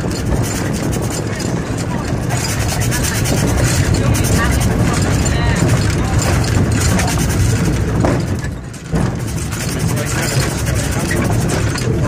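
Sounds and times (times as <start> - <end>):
clatter of knocks and clanks: 0.0 - 12.0.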